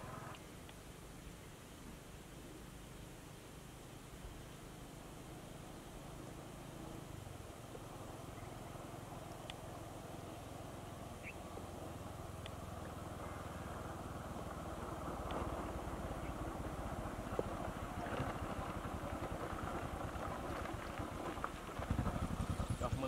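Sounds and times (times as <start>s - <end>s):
small motorcycle engine running: 0.0s - 0.4s, 6.0s - 23.0s.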